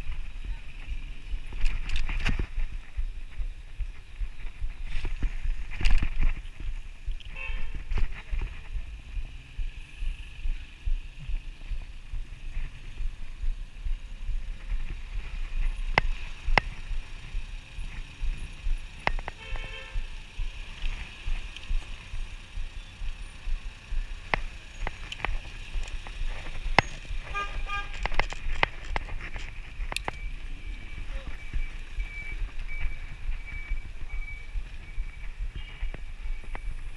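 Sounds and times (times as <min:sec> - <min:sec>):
bicycle rattling over bumps: 0:00.0 - 0:09.3, 0:11.3 - 0:36.9
wind and road rumble: 0:00.0 - 0:36.9
car horn toots: 0:07.2 - 0:07.9, 0:19.3 - 0:20.1, 0:27.2 - 0:28.2.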